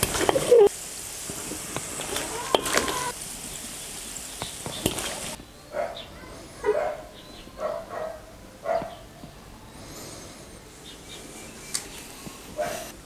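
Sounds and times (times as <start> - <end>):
oil sizzling: 0.0 - 5.4
dog barking: 5.7 - 9.1, 12.6 - 12.9.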